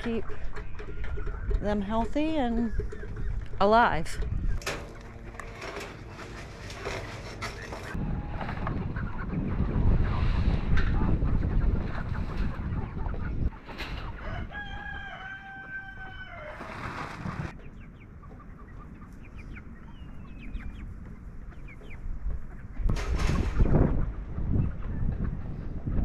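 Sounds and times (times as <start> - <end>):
low wind rumble: 0.0 - 26.0
rooster crowing: 14.2 - 16.7.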